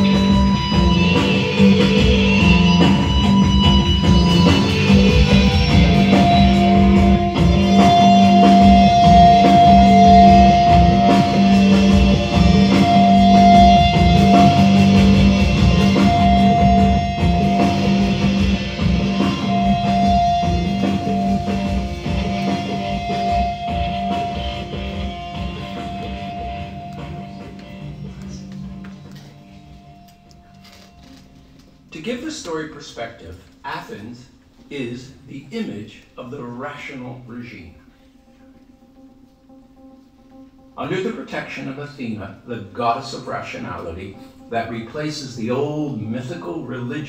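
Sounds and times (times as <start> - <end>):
rock instrumental music: 0.0 - 32.0, 37.5 - 41.8.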